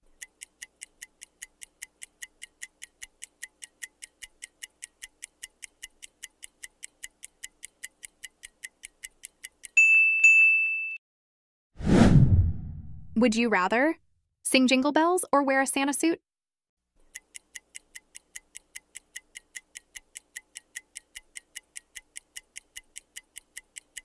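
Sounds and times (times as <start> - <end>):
clock ticking: 0.0 - 9.8, 17.0 - 24.0.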